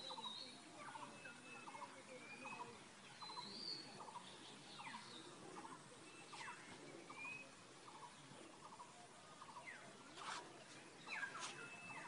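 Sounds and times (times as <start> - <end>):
birds calling faintly: 0.0 - 12.0.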